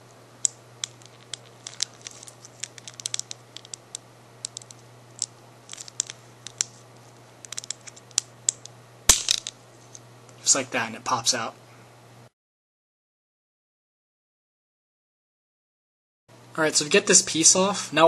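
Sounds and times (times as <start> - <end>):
faint steady hum: 0.0 - 12.3, 16.3 - 18.0
plastic clicks and creaks: 0.8 - 3.8.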